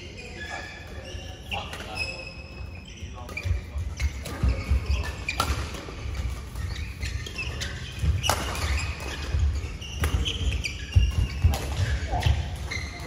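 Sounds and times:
shoes squeaking on court: 0.0 - 13.0
racket hitting shuttlecock: 4.2 - 12.8.

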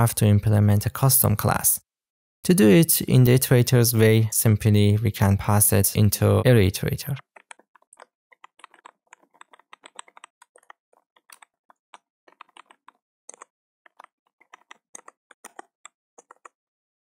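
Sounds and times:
faint computer keyboard typing: 7.2 - 16.6.

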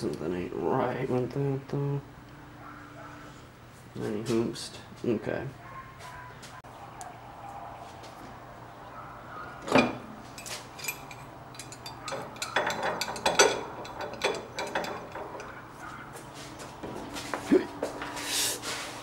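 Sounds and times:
metal tool clank: 9.6 - 15.6
wrench clicks and clinks: 10.4 - 15.5.

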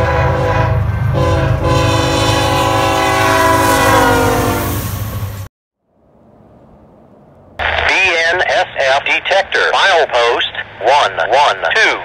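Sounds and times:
locomotive air horn: 0.0 - 4.9.

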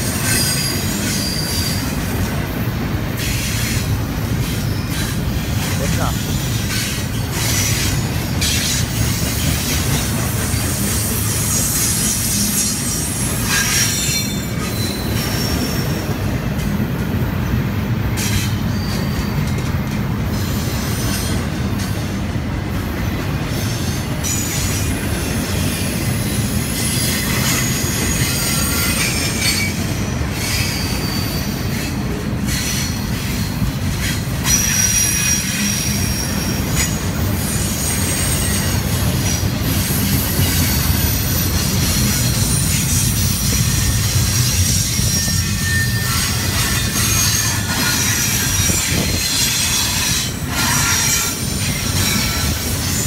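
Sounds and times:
high-pitched wheel squeals: 0.0 - 2.0, 10.5 - 16.1, 18.2 - 19.6, 26.6 - 33.6, 34.4 - 53.0
steel wheels rumbling on rail: 0.0 - 53.0.

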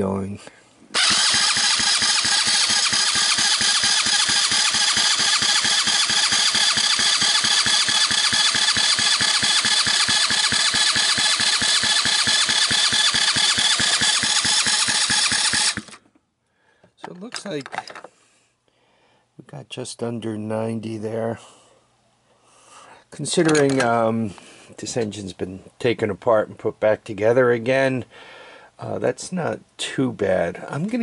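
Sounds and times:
engine cranking without firing: 1.0 - 16.0.

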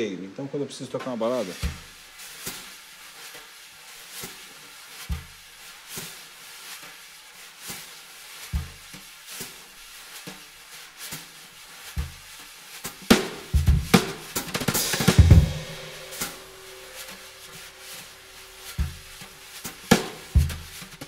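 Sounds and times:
brushes swishing on snare drum: 0.4 - 21.0
soft low drum thump: 13.6 - 14.1, 18.8 - 19.2, 20.0 - 20.9.

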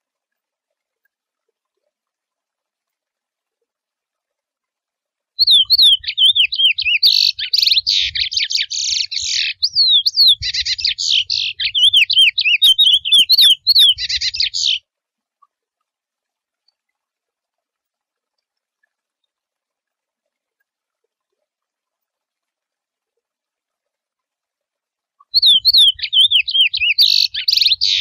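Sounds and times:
finch singing whistled song: 5.4 - 14.8, 25.3 - 28.0.

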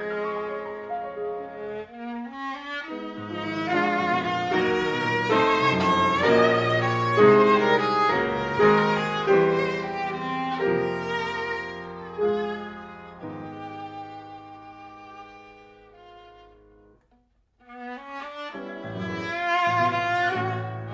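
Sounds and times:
piano accompaniment: 0.0 - 17.1, 17.7 - 20.9
viola playing classical melody: 0.0 - 20.9.

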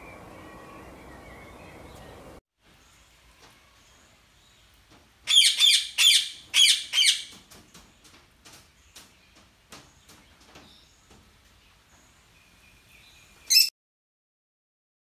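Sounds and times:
parakeet squawking and chirping: 5.3 - 7.4, 13.5 - 13.7.

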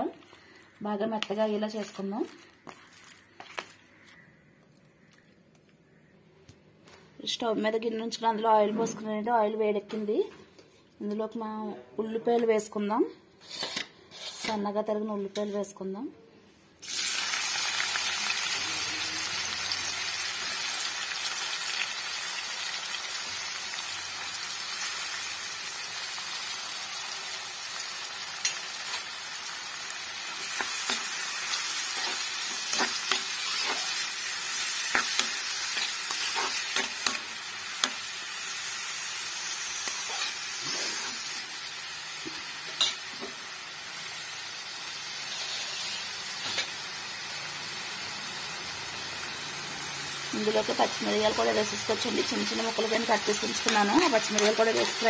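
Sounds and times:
onions sizzling in hot oil: 0.0 - 3.7, 16.8 - 55.0
spoon scraping a metal pan: 13.4 - 14.6, 30.4 - 34.0, 34.7 - 38.0, 39.8 - 41.2, 53.6 - 55.0.

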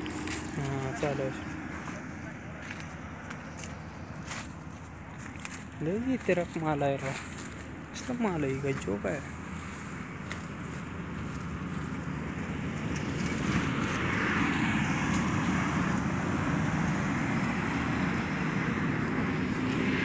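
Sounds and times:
motor engine running: 0.0 - 6.3.

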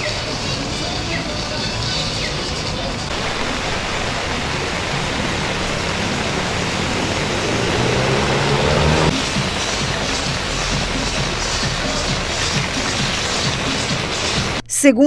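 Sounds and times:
heavy rain falling: 0.0 - 14.6
low rumble: 3.1 - 12.4.

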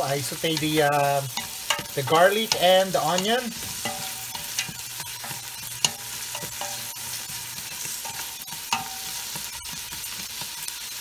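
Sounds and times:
onion sizzling in hot oil: 0.0 - 11.0
spoon scraping pot: 0.6 - 10.9
spoon clinking against pot: 1.3 - 9.9.

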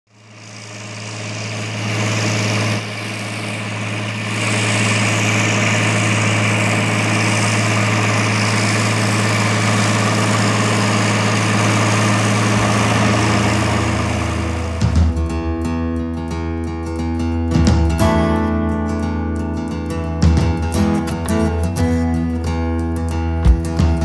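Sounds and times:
tractor diesel engine humming: 0.1 - 16.7.

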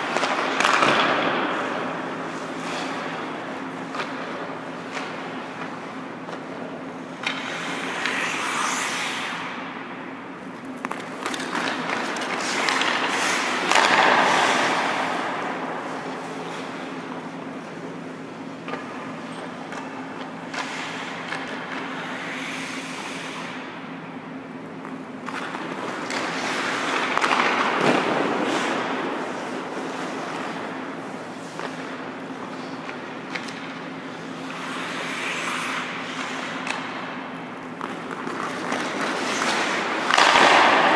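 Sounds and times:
skate blades scraping on ice: 0.0 - 9.8, 10.4 - 23.8, 25.0 - 40.9
clicks of sticks and puck: 0.0 - 23.9, 24.6 - 40.9
long scrape of ice: 7.5 - 9.4, 34.5 - 36.5.

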